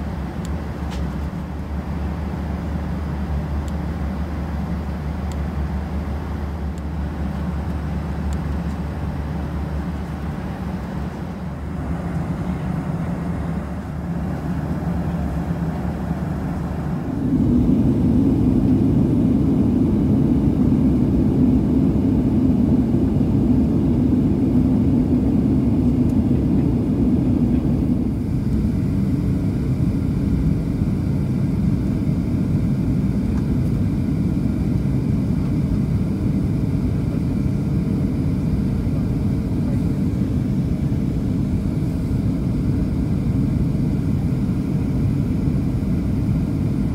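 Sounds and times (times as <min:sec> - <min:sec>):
airplane cabin air rush: 0:00.0 - 0:46.9
jet engines droning: 0:00.0 - 0:46.9.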